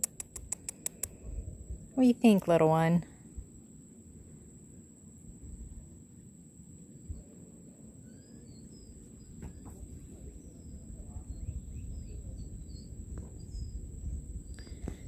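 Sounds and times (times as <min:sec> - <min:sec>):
high-pitched insect whine: 0:03.2 - 0:15.0.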